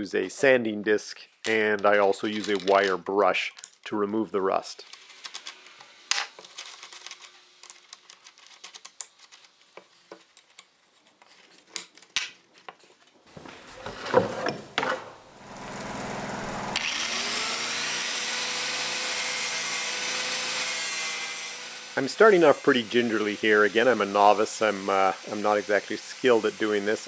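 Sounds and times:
angle grinder grinding metal: 0:13.4 - 0:27.0.

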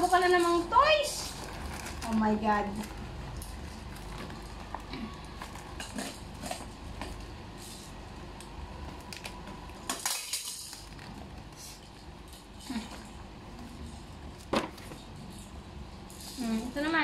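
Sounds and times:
plastic toys rattling: 0:00.0 - 0:07.9, 0:09.1 - 0:13.2
plastic packaging crinkling: 0:00.4 - 0:07.3, 0:08.8 - 0:12.0.

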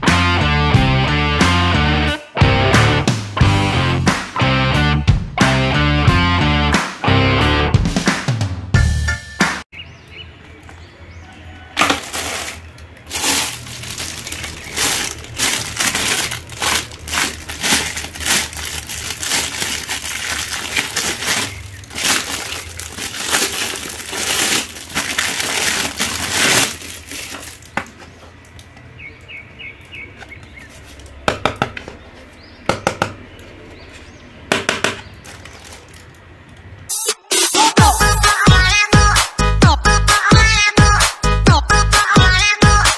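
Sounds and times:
plastic bags crinkling: 0:11.8 - 0:28.7, 0:35.0 - 0:36.6
plastic masks tapping: 0:11.8 - 0:28.8, 0:29.8 - 0:33.6, 0:34.5 - 0:36.6.

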